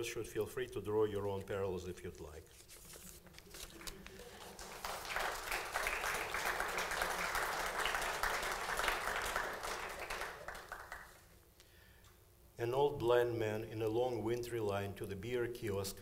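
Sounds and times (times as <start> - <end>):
audience applauding: 3.8 - 11.3.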